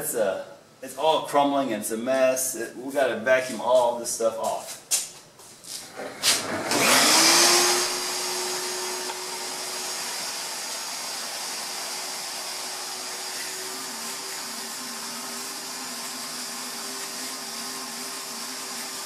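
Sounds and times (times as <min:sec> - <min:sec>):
vacuum cleaner running: 0:05.8 - 0:19.0.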